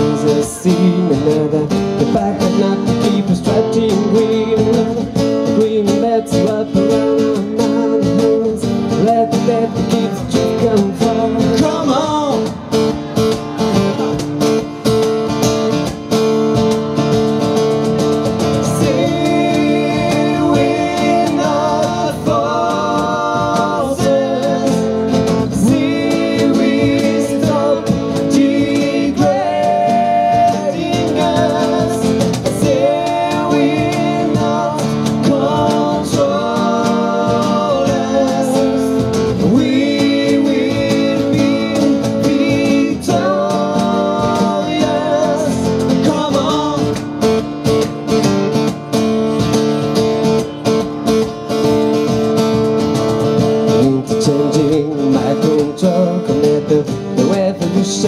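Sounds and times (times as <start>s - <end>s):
acoustic guitars strummed: 0.0s - 58.0s
cajon beat: 0.0s - 58.0s
person singing: 18.6s - 47.0s.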